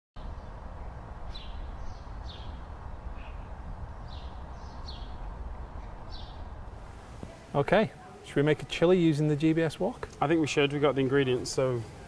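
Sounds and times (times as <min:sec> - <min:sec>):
steady low rumble: 0:00.2 - 0:07.2
birds chirping: 0:00.2 - 0:12.0.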